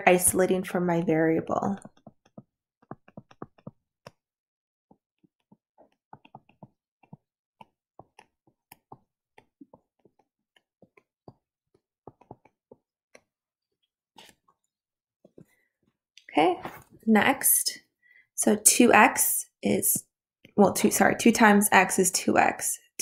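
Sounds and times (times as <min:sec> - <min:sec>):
stylus tapping on tablet screen: 0:01.8 - 0:04.2, 0:05.4 - 0:11.4, 0:12.1 - 0:13.2.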